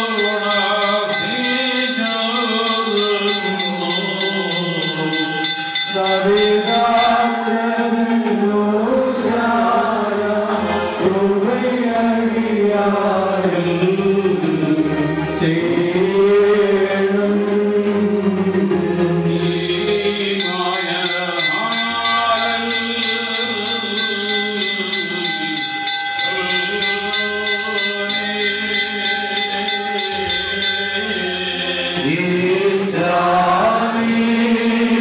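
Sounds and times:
sustained drone tone: 19.4 - 33.3.

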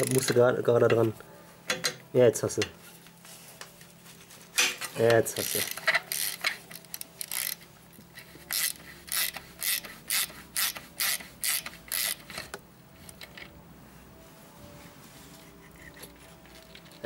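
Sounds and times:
hand ratchet clicking: 5.4 - 7.6, 8.2 - 13.4.

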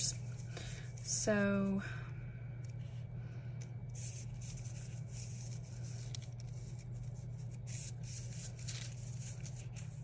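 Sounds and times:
steady low hum: 0.0 - 10.0
wax paper rustling over paper: 3.9 - 10.0.

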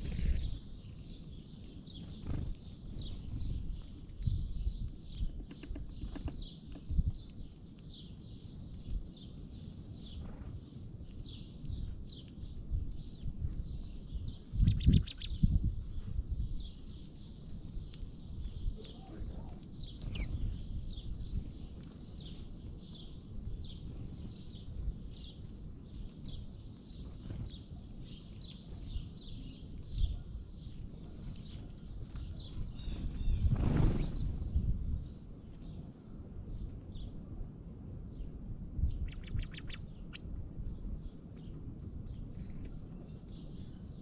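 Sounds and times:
songbirds chirping: 0.0 - 44.0
songbird chip calls: 38.9 - 40.2.

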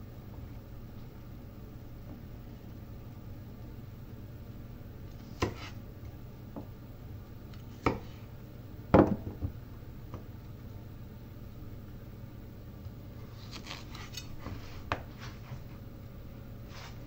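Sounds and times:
knife chopping on cutting board: 5.4 - 5.8, 7.8 - 8.1.

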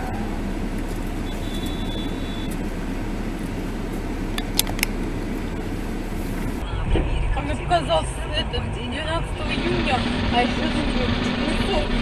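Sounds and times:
car engine idling: 0.0 - 12.0
thin high whistle: 1.2 - 2.6.

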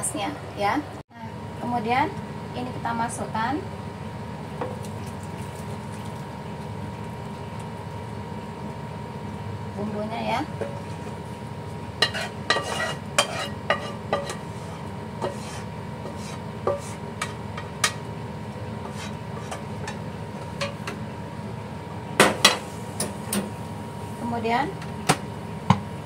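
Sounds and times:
spoon scraping cooking pot: 12.0 - 17.4, 18.8 - 20.8.

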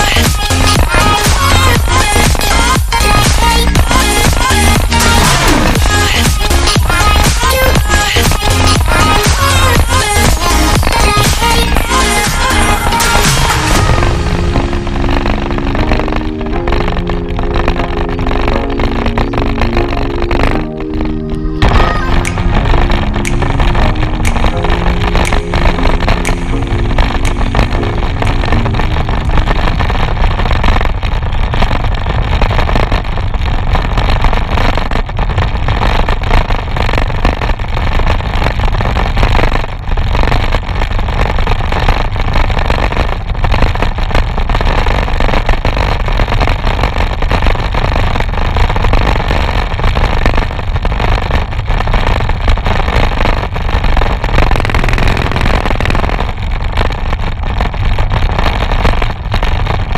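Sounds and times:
road noise: 21.4 - 31.8.

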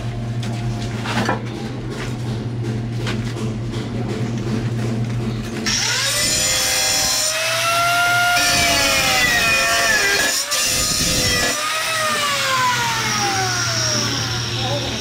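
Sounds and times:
gritty cutting noise: 5.6 - 15.0
power tool motor whine: 5.6 - 15.0.

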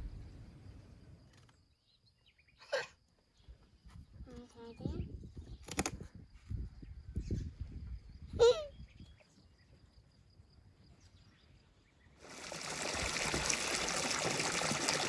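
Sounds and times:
water splashing in a pool: 12.2 - 15.0.

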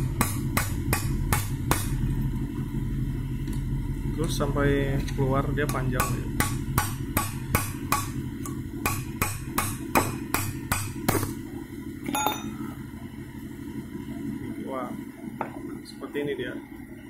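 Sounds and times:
ringing metallic clink: 12.1 - 12.6.

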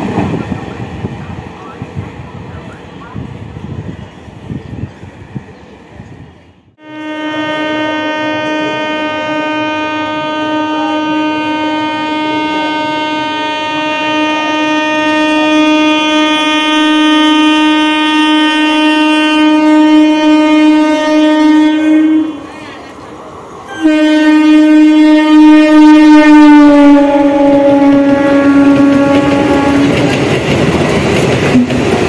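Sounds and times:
train horn: 6.8 - 22.7, 23.7 - 30.2.

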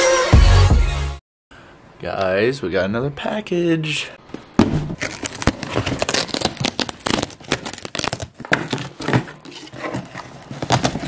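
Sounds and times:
cardboard box being torn open: 5.0 - 11.0
packing tape ripping: 5.0 - 11.0.

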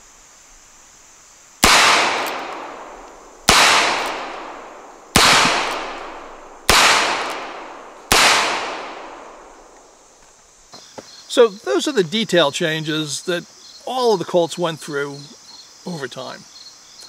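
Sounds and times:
revolver gunshots echoing: 1.6 - 10.0.

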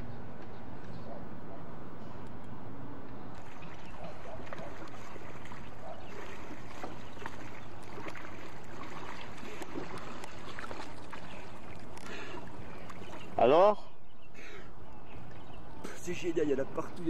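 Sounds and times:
water sloshing and splashing: 3.3 - 13.8.

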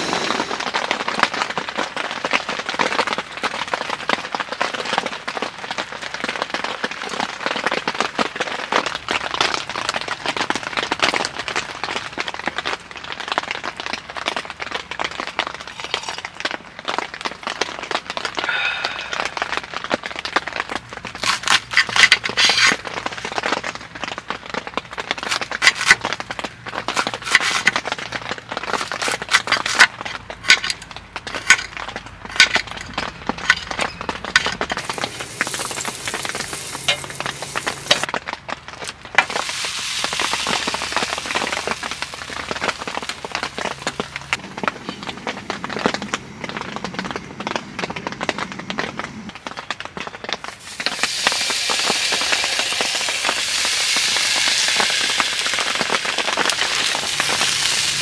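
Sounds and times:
crackling clicks and pops: 0.0 - 58.0.

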